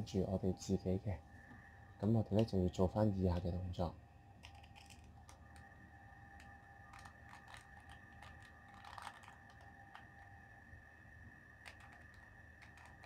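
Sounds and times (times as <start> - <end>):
puzzle cube plastic clicks: 4.4 - 5.7, 6.4 - 10.3, 11.6 - 13.0.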